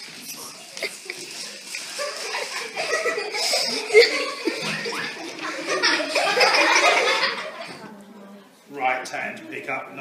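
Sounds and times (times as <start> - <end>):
people chattering: 0.0 - 10.0
people laughing: 0.8 - 7.9.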